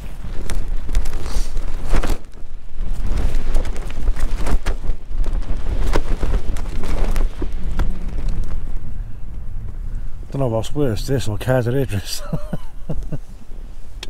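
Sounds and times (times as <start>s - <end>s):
tent fabric flapping: 0.0s - 10.5s
wind buffeting rumble: 0.0s - 14.0s.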